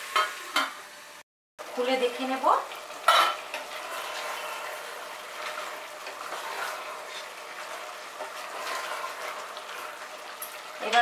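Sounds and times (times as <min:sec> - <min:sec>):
meat sizzling in oil: 0:00.0 - 0:11.0
spatula scraping a pot: 0:03.0 - 0:11.0.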